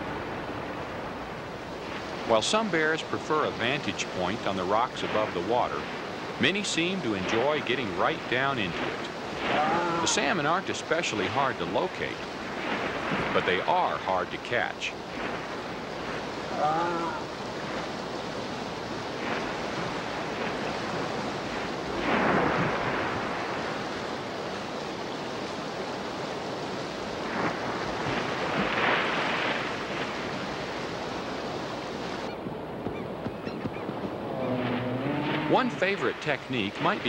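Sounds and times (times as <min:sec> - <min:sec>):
rushing river water: 0:00.0 - 0:37.0
heavy splashing in water: 0:01.8 - 0:14.4, 0:15.0 - 0:24.2, 0:27.2 - 0:31.4.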